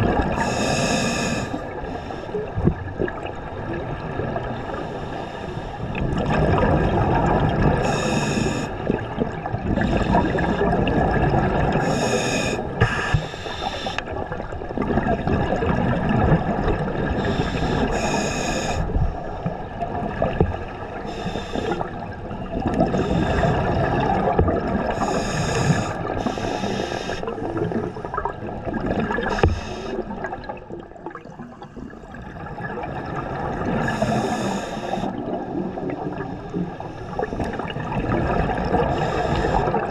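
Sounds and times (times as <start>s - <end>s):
regulator inhalation hiss: 0.4s - 2.2s, 7.8s - 8.7s, 11.8s - 14.0s, 17.2s - 18.9s, 21.1s - 21.8s, 25.0s - 27.3s, 29.3s - 30.0s, 33.9s - 35.1s.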